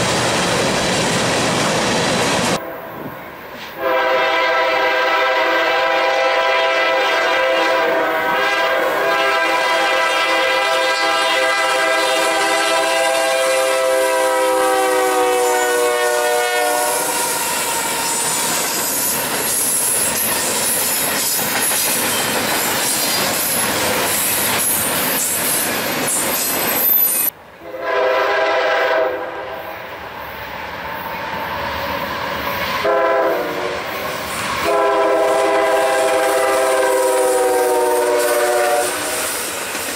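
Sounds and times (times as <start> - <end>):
train air horn: 3.7 - 19.1, 27.6 - 29.7, 32.8 - 34.0, 34.6 - 39.5
locomotive horn blasts: 3.8 - 18.2, 27.6 - 29.5, 32.8 - 33.9, 34.6 - 39.2
train wheels clickety-clack: 17.1 - 27.3, 33.8 - 39.9.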